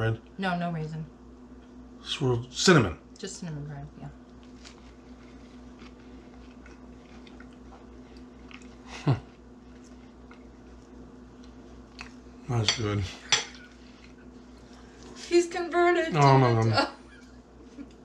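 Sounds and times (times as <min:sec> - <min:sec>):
mouth chewing sounds: 0:05.6 - 0:08.9, 0:09.8 - 0:12.3.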